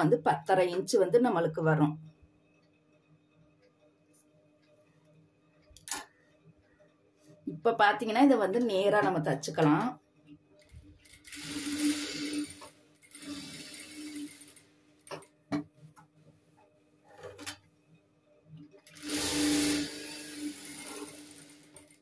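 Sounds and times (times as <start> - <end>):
industrial sewing machine stitching: 11.1 - 14.7, 18.9 - 22.0.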